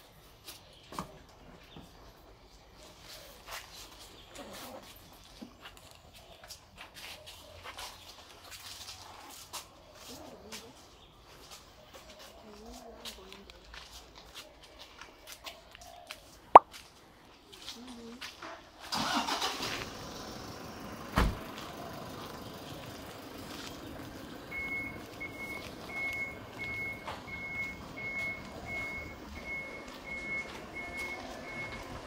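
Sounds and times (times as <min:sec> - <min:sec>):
vehicle engine running: 0:19.6 - 0:32.0
thump: 0:21.2 - 0:21.4
reversing beeper: 0:24.5 - 0:31.9.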